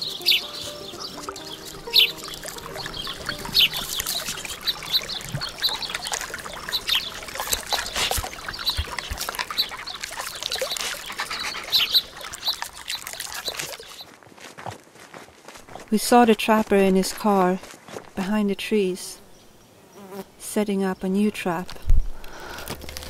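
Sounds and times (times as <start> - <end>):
water splashing in creek: 0.0 - 14.2.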